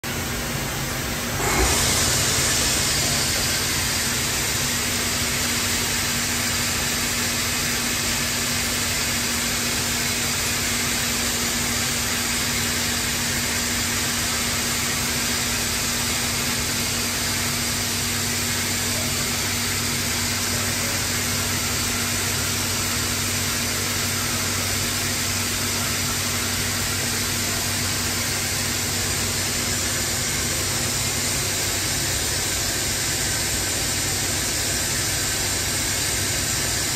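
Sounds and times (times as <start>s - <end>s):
machine hum: 0.1s - 7.5s
router machine rushing hiss: 1.0s - 8.8s.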